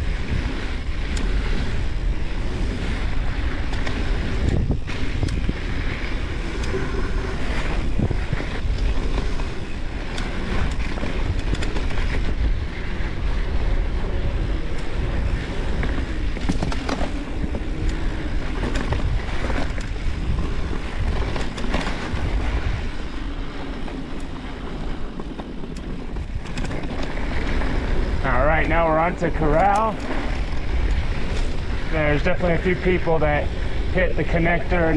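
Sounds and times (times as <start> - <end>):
tyres rumbling on dirt trail: 0.0 - 34.9
wind buffeting microphone: 0.0 - 34.9
bike clicks and knocks: 0.2 - 33.1.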